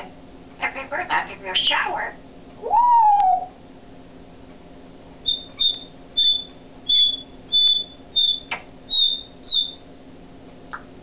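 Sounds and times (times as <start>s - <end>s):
parrot whistling high notes: 5.3s - 9.8s.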